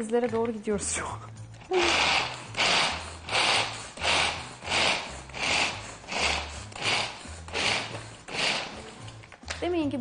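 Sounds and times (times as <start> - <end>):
pull-cord chopper whirring rasp: 1.7 - 9.2.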